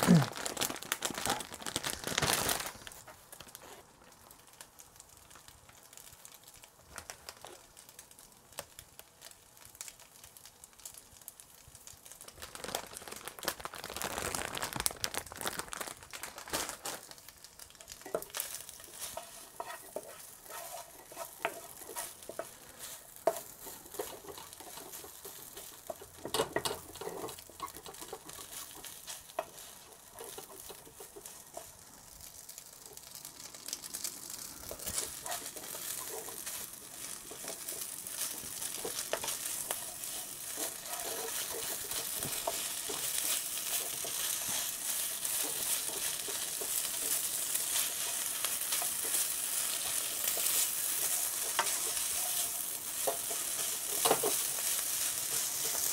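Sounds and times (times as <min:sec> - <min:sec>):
food sizzling in a pan: 0:00.0 - 0:55.9
wooden spatula scraping a pan: 0:18.0 - 0:31.8, 0:34.3 - 0:55.9.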